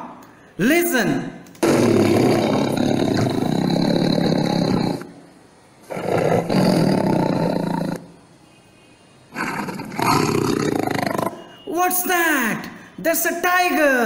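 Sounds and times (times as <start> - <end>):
tiger roaring: 1.6 - 5.2, 5.8 - 8.0, 9.3 - 11.4.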